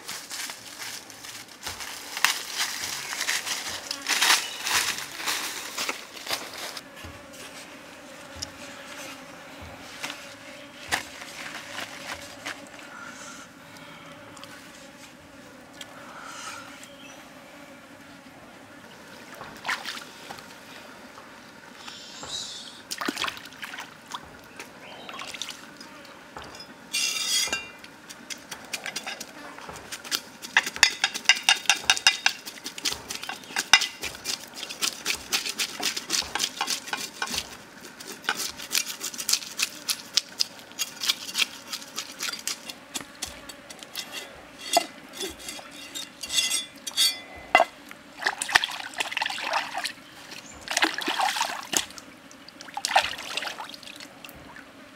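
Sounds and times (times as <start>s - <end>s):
knife scraping fish scales: 30.0s - 47.7s.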